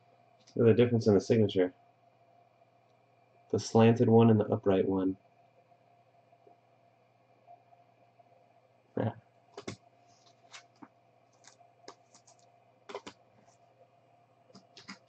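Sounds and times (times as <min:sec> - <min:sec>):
trading cards clicking and tapping: 0:09.6 - 0:13.5, 0:14.6 - 0:15.0.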